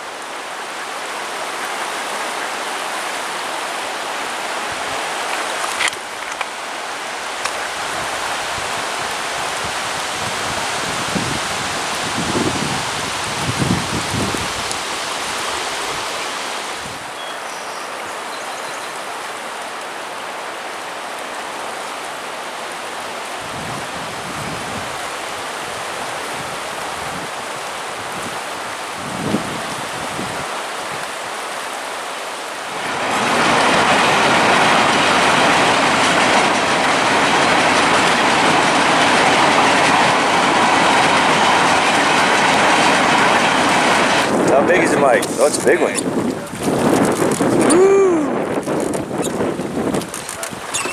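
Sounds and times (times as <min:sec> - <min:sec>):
river water hissing: 0:00.0 - 0:50.9
freight train rolling on rails: 0:32.7 - 0:47.7.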